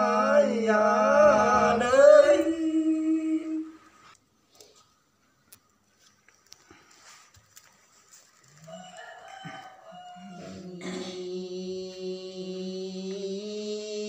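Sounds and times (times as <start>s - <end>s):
woman chanting: 10.1s - 14.0s.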